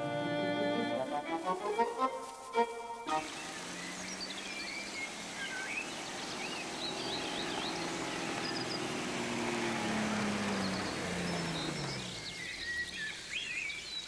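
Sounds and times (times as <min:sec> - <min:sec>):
birds chirping: 0:00.0 - 0:14.0
car engine running: 0:03.1 - 0:13.7.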